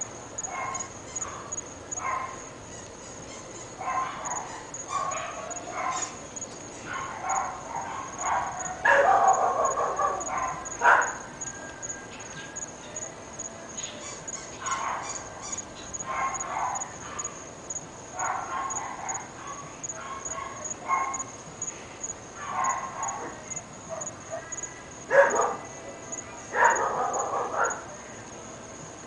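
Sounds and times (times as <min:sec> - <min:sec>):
dogs barking: 0:00.4 - 0:02.5, 0:03.7 - 0:06.2, 0:06.8 - 0:13.1, 0:14.2 - 0:17.5, 0:18.1 - 0:21.4, 0:22.4 - 0:25.8, 0:26.4 - 0:28.1.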